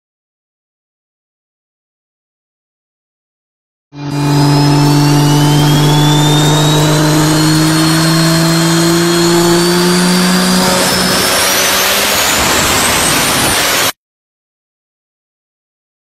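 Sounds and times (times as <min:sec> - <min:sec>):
loud engine-like drone: 0:04.0 - 0:14.0.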